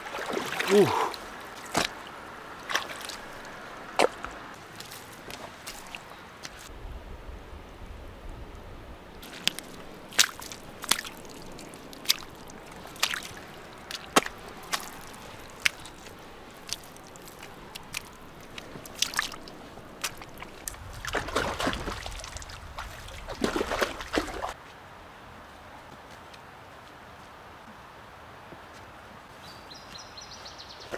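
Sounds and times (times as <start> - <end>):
hands squelching in wet mud: 0.0 - 6.7, 9.2 - 24.6.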